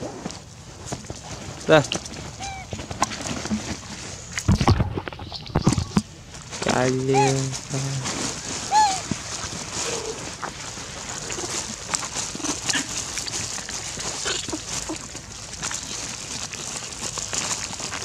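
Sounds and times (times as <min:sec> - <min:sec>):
plastic bag rustling and crinkling: 0:00.0 - 0:18.0
faint animal calls: 0:02.2 - 0:02.8, 0:06.8 - 0:07.8, 0:08.5 - 0:10.5.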